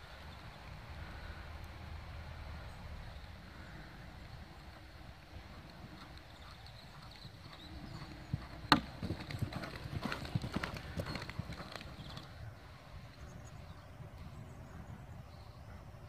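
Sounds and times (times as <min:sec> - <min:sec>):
hooves cantering on sand: 0:03.2 - 0:12.5.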